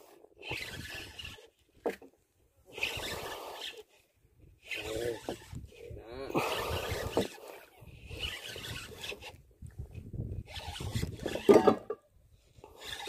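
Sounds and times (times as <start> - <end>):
fishing reel whirring: 0.0 - 1.6, 2.7 - 4.0, 4.6 - 9.4, 10.4 - 11.7, 12.5 - 13.0.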